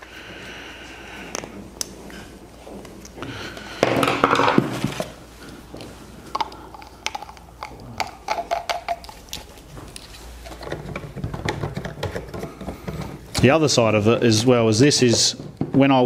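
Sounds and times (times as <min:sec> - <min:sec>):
plastic parts rustling and knocking: 0:02.9 - 0:13.6, 0:14.7 - 0:16.0
plastic parts clicking and tapping: 0:10.0 - 0:13.5.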